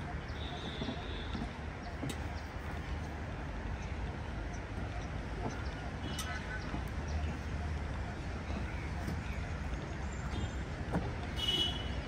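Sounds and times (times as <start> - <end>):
high bird calls: 0.0 - 2.6
footsteps: 0.0 - 12.0
low city rumble: 0.0 - 12.0.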